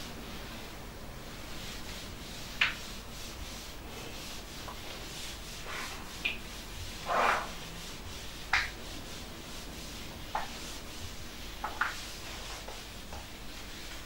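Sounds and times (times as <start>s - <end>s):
low room hiss: 0.0s - 14.0s
writing tool scratches and taps: 8.5s - 8.8s, 10.3s - 10.6s, 11.6s - 13.3s.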